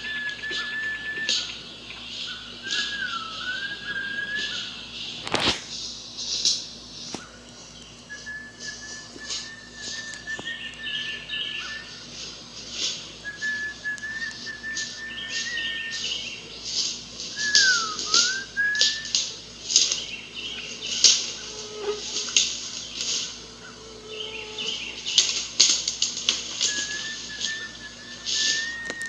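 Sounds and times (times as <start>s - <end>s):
rustling and crackling: 1.3s - 11.0s, 11.6s - 29.0s
person whistling high notes: 17.4s - 19.1s, 26.7s - 29.0s.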